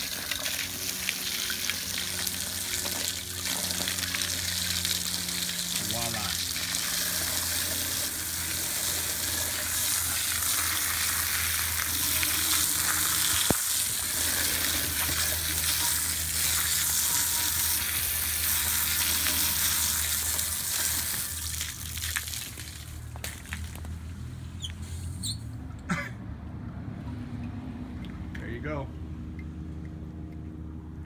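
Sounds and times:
hose spraying onto metal: 0.0s - 23.8s.

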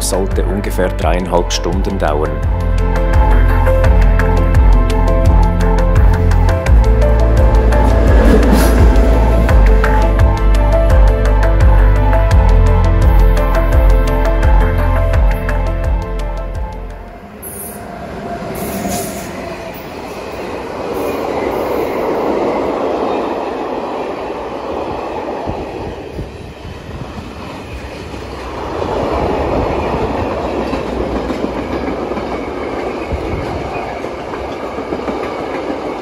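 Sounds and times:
freight train rumbling past: 0.0s - 36.0s.

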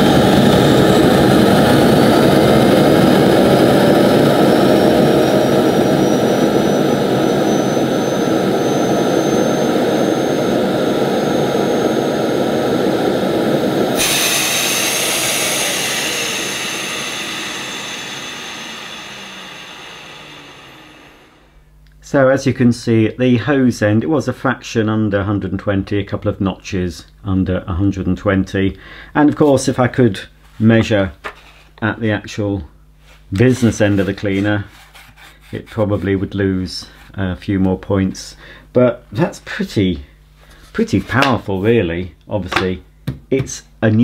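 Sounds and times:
vacuum cleaner motor whine: 0.0s - 21.7s, 33.3s - 37.1s.

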